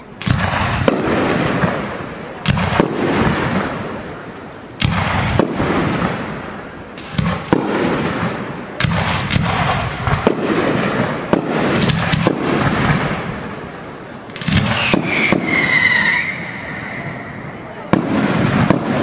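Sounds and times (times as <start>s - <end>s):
firework crackle and rumble: 0.0s - 19.0s
firework shells bursting: 14.2s - 19.0s.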